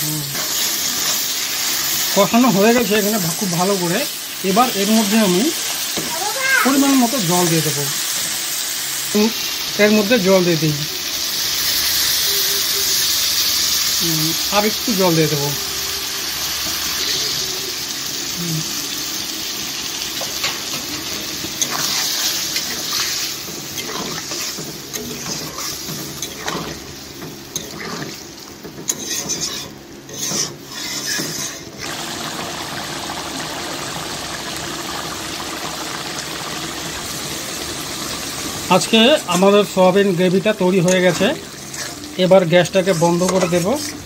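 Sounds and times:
gravy sizzling hiss: 0.0s - 44.0s
metal spatula scraping a pan: 21.6s - 26.8s, 27.5s - 31.8s, 42.7s - 44.0s.

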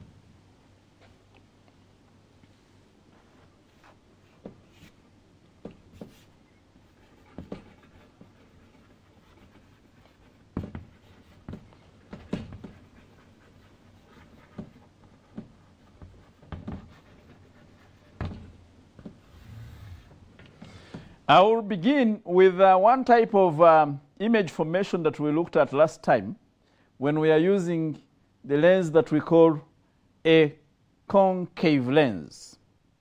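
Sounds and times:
chalk tapping and scraping: 3.1s - 5.0s, 5.6s - 20.2s.

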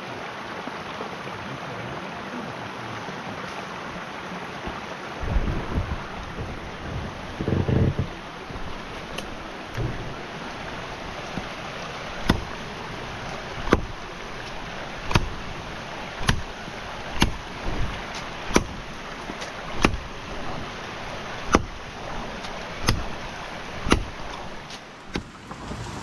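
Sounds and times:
steady rushing noise: 3.9s - 26.0s
wood chopping: 7.5s - 25.3s.

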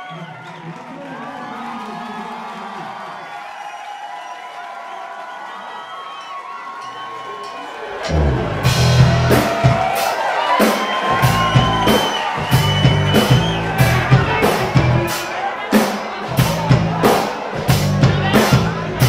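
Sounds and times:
rock band playing loudly: 8.0s - 19.0s
drum hits: 8.1s - 15.3s.

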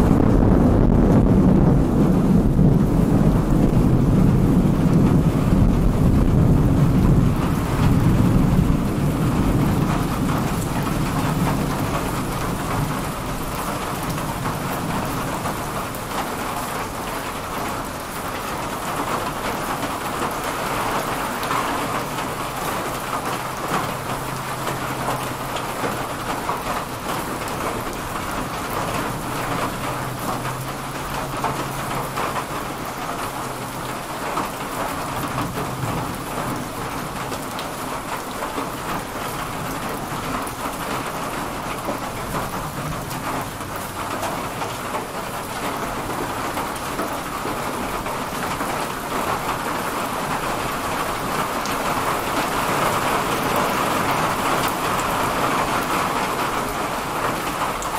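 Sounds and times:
thunder rumbling: 0.0s - 16.8s
rain falling steadily: 0.0s - 57.9s.

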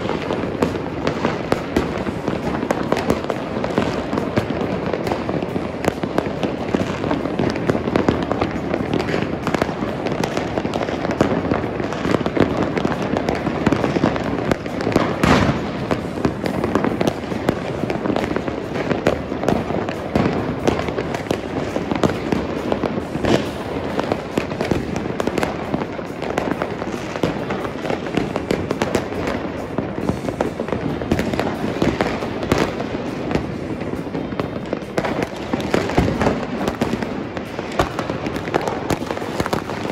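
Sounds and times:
fireworks bangs and crackles: 0.0s - 39.9s
loud sharp firework bangs: 0.0s - 39.9s.

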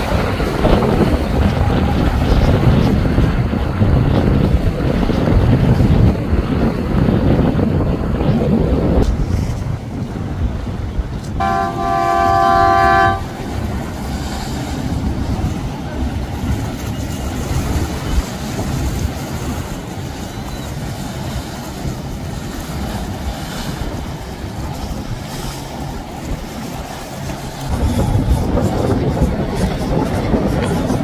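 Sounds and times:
boat engines rumbling: 0.0s - 31.0s
water wash: 0.0s - 31.0s
wind: 0.0s - 31.0s
horn blast: 11.4s - 13.6s.

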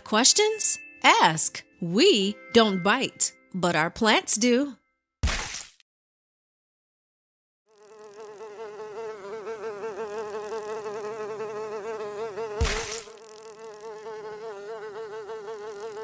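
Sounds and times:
flying insect buzzing: 7.7s - 16.0s.

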